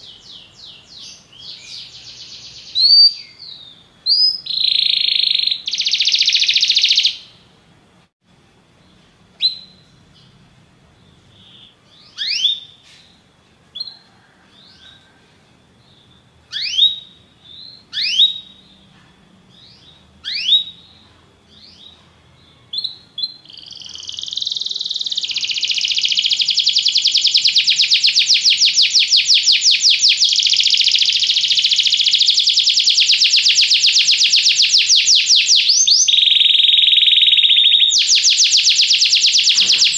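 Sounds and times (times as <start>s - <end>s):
canary singing trills: 0.0s - 7.4s, 8.8s - 15.2s, 15.8s - 39.9s.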